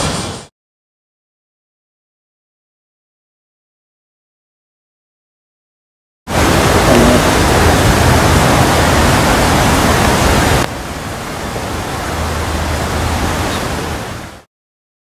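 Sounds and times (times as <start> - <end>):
loud rushing noise: 6.3 - 14.4.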